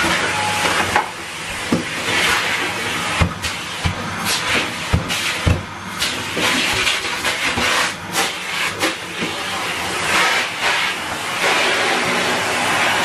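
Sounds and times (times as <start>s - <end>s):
vacuum cleaner running: 0.0s - 13.0s.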